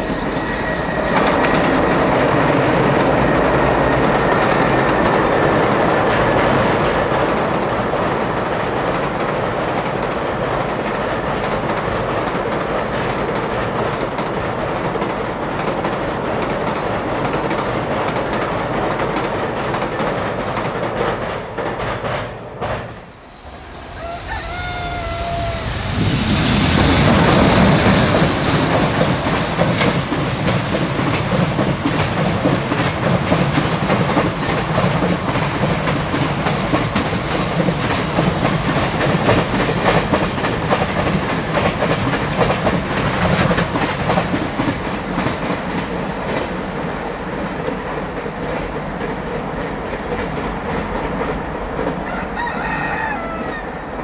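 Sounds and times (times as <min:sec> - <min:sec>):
freight train passing: 0:00.0 - 0:54.0
wheels clacking over rail joints: 0:26.9 - 0:52.0.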